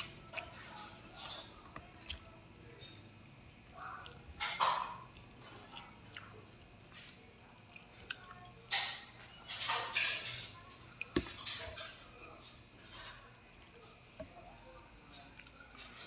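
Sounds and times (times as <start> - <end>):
wet chewing and lip-smacking: 1.6 - 2.4, 5.0 - 8.6.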